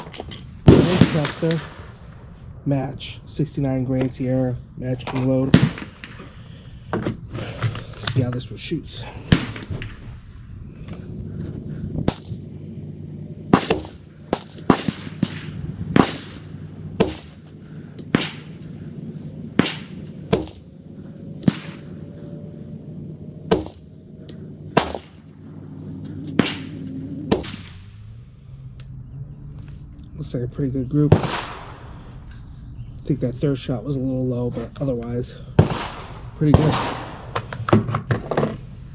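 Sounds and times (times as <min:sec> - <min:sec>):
rifle gunshots: 0:12.1 - 0:12.5, 0:13.5 - 0:22.2, 0:23.5 - 0:25.3, 0:26.1 - 0:27.7, 0:31.1 - 0:31.8.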